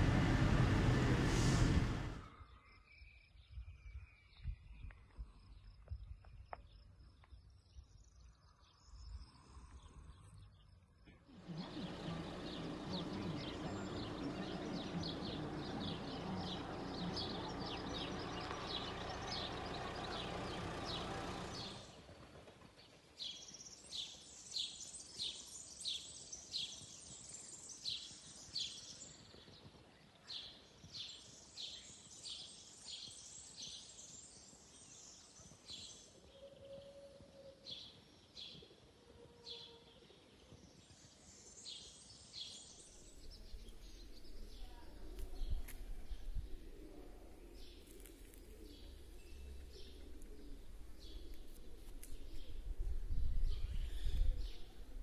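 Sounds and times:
steady background noise: 0.0 - 2.2
small birds chirping: 0.0 - 22.0, 39.5 - 55.0.

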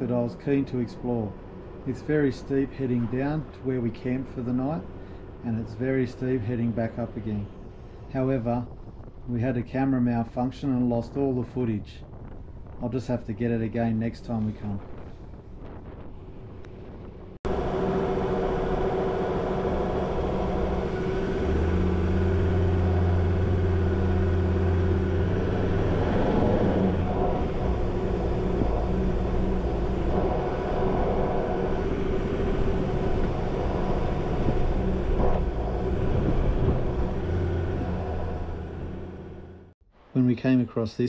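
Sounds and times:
engine running: 16.5 - 39.8.

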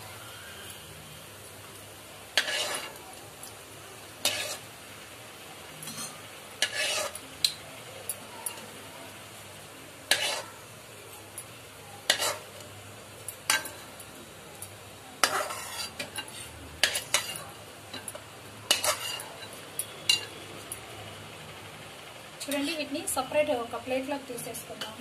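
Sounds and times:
oil sizzling: 0.0 - 25.0
spoon scraping and clinking pan: 2.4 - 3.0, 4.2 - 4.7, 5.8 - 7.3, 10.1 - 10.6, 12.1 - 12.6, 15.2 - 20.4.

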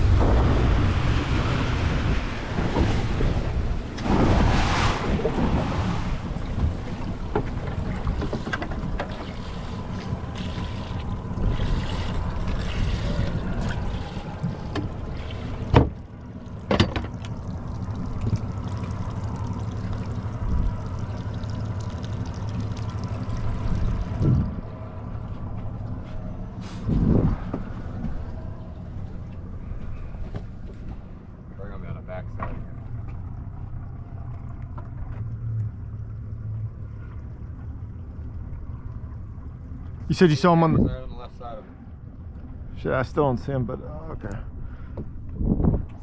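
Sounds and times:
water noise: 0.0 - 46.0
wind: 0.0 - 46.0
outboard motor running: 5.1 - 46.0.

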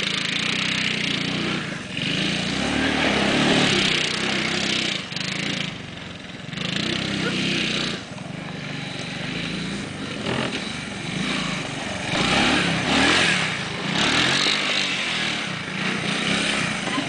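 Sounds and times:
small atv engine revving: 0.0 - 17.0.

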